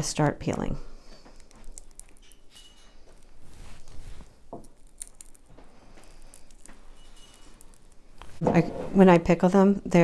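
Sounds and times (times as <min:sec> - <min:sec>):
eggshell crackling as peeled: 0:01.0 - 0:08.4.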